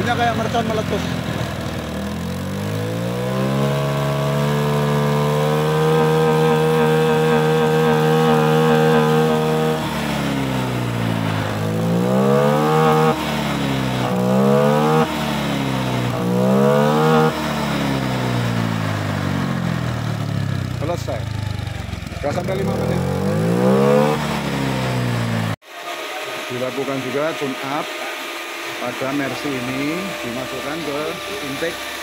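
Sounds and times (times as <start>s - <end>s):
scooter throttle blips: 0.0s - 25.6s
scooter engine revving: 0.0s - 32.0s.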